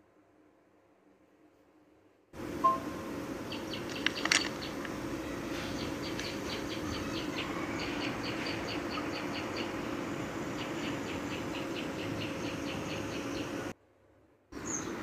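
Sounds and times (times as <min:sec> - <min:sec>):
steady background hum: 0:00.0 - 0:15.0
small birds chirping: 0:02.7 - 0:13.7, 0:14.6 - 0:15.0.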